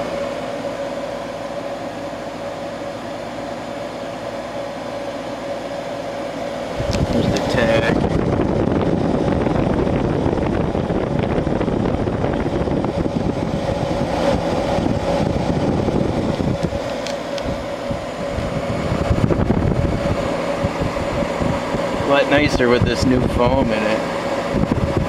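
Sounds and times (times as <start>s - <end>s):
air conditioner hum: 0.0s - 25.0s
fan air rushing: 0.0s - 25.0s
wind buffeting microphone: 6.7s - 23.7s, 24.3s - 25.0s.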